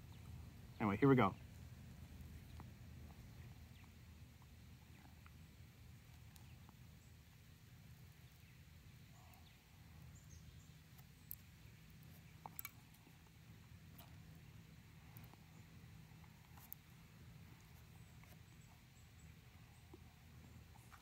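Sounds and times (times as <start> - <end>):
faint low hum: 0.0 - 21.0.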